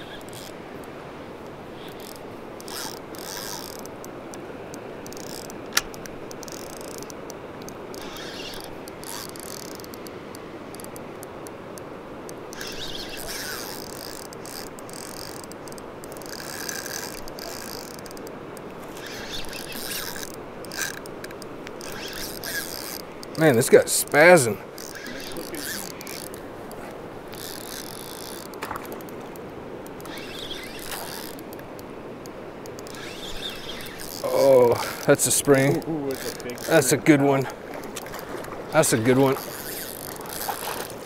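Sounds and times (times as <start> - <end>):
fishing reels spinning: 0.0 - 0.9, 1.8 - 37.0, 37.9 - 41.0
sharp click: 5.1 - 8.7
river rushing over gravel: 34.2 - 41.0.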